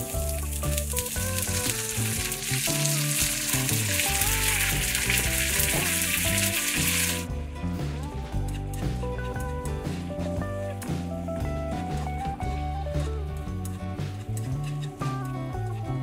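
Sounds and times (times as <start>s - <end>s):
cabbage sizzling in a pan: 0.0s - 7.3s
background music with melody: 0.0s - 16.0s.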